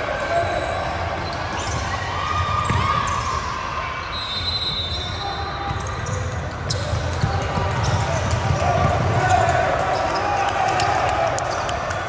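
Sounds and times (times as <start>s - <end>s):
shoe squeaks and knocks: 0.6s - 1.9s, 4.9s - 8.3s
basketball bouncing on court: 1.1s - 3.4s, 5.6s - 10.9s.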